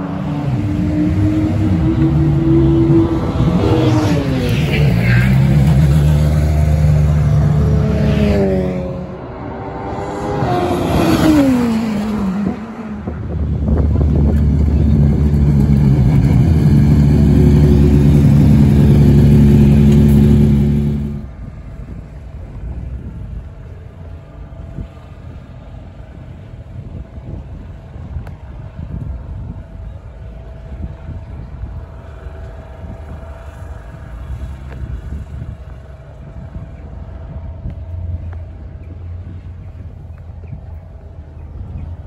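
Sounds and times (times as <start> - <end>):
racing car passing by: 0.0 - 21.4
low engine rumble: 0.0 - 42.0
sports car engine running loudly: 12.4 - 22.0.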